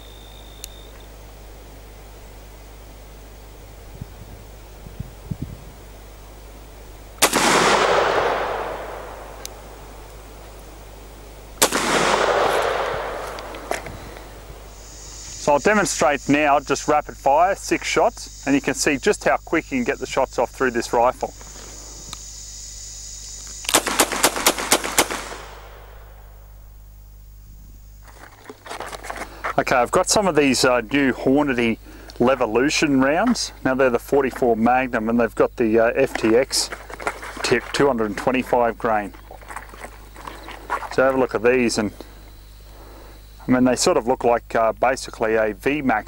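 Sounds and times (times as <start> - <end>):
rifle shots with echo: 7.2 - 10.0, 11.6 - 14.6, 23.7 - 26.3.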